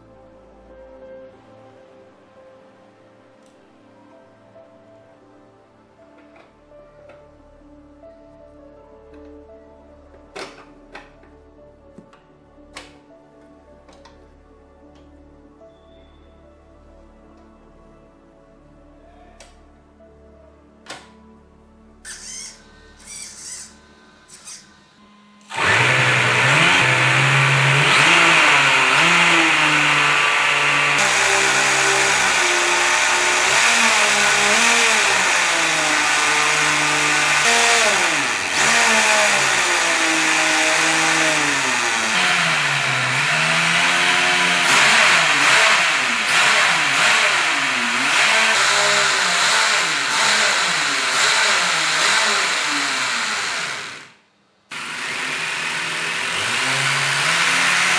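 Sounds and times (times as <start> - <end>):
music: 0.0 - 57.9
rc car electric motor whirring: 22.0 - 24.7, 25.5 - 57.9.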